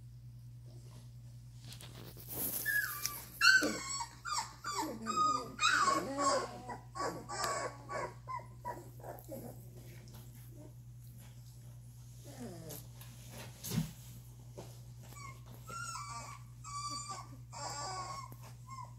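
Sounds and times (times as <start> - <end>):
puppies whimpering and whining: 2.3 - 10.8, 12.1 - 13.0, 15.0 - 18.9.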